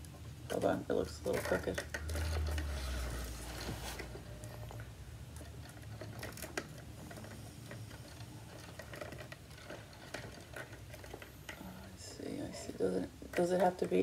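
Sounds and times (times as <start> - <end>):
acrylic pieces clicking and tapping: 0.0 - 2.7, 12.4 - 14.0.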